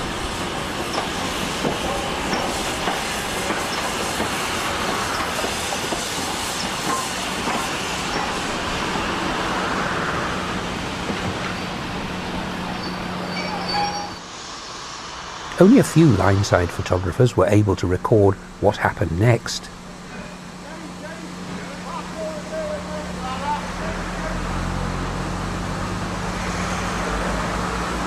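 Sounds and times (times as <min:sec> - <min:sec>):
wheels clacking over rail joints: 0:00.0 - 0:09.9, 0:10.5 - 0:14.2
steam train rolling past: 0:00.0 - 0:28.0.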